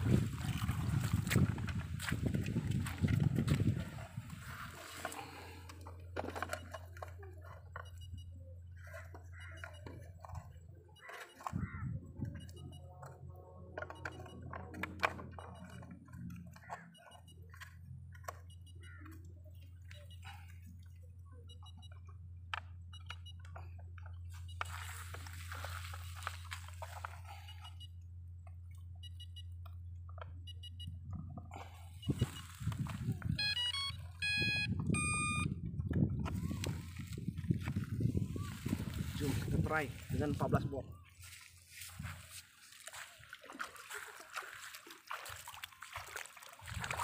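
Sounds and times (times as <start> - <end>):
plastic parts clicking and rustling: 4.9 - 8.0, 12.5 - 19.2
single electronic beeps: 6.2 - 28.0, 28.7 - 41.0
speed controller start-up tones: 22.8 - 23.7, 28.9 - 31.0, 31.6 - 35.7.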